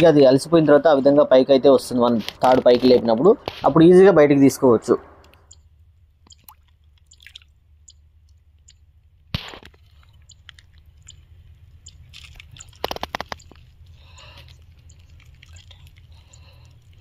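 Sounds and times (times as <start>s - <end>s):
low steady rumble: 0.0s - 17.0s
wet squishing: 6.2s - 8.8s, 9.4s - 17.0s.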